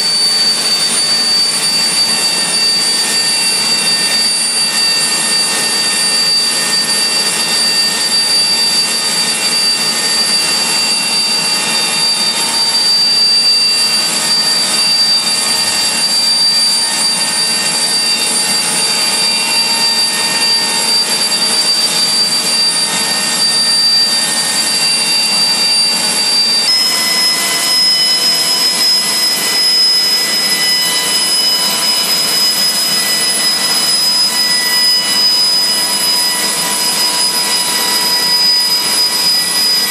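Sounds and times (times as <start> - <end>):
high turbine whine: 0.0 - 39.9
turboshaft engine running: 0.0 - 39.9.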